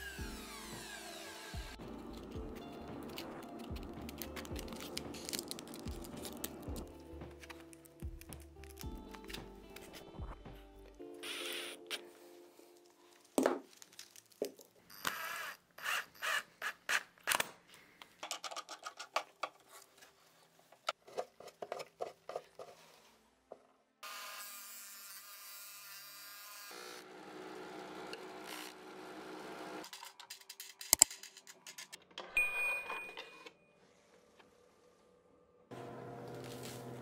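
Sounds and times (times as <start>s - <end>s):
drill press running: 0.0s - 2.4s.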